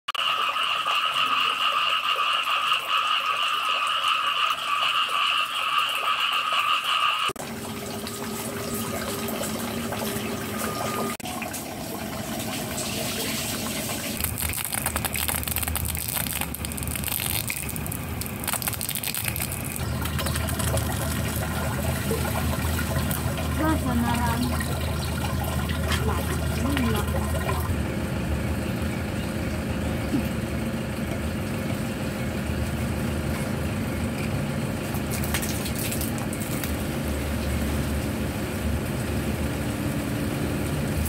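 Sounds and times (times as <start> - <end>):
water splashing: 7.4 - 27.7.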